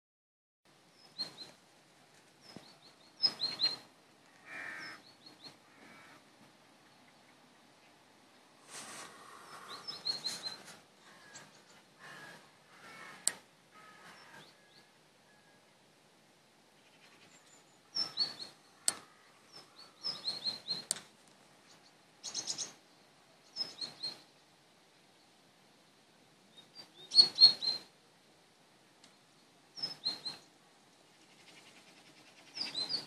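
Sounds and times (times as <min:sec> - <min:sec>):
small birds chirping: 0:00.9 - 0:01.6, 0:02.2 - 0:06.2, 0:06.8 - 0:13.4, 0:16.7 - 0:21.0, 0:21.6 - 0:24.4, 0:26.5 - 0:28.0, 0:29.0 - 0:33.0
sharp clicks: 0:18.8 - 0:19.1.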